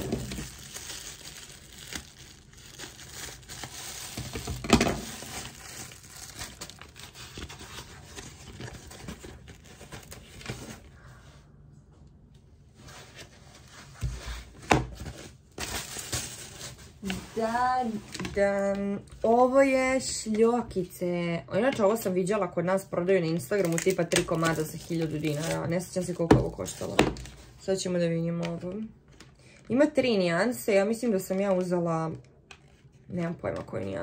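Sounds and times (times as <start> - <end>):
plastic wrapping crinkling: 0.0 - 10.9, 15.0 - 18.8, 23.4 - 27.6.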